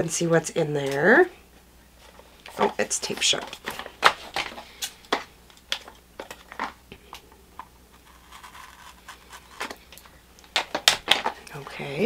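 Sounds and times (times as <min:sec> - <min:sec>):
tape peeling off cardboard box: 0:07.9 - 0:09.8.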